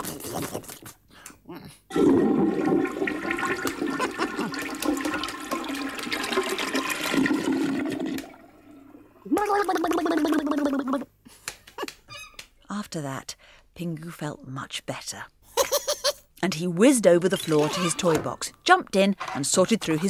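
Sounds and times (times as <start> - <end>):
toilet flushing: 1.9 - 9.3.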